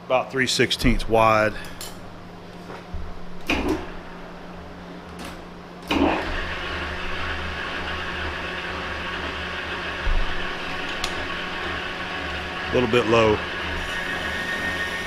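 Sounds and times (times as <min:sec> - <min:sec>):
lathe motor hum: 0:00.8 - 0:15.0
lathe tool cutting metal: 0:06.0 - 0:15.0.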